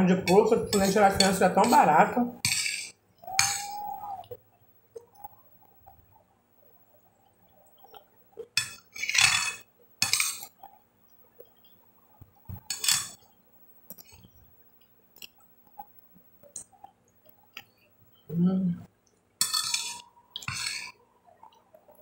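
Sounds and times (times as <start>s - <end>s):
metal spoon scraping glass bowl: 0.3s - 3.8s, 8.6s - 10.5s, 19.4s - 21.0s.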